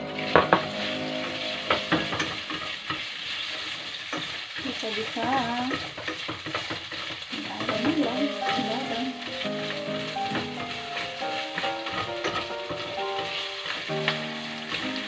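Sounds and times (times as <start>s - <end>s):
meat sizzling in hot oil: 0.0s - 15.0s
chopsticks clicking against pan: 4.1s - 15.0s.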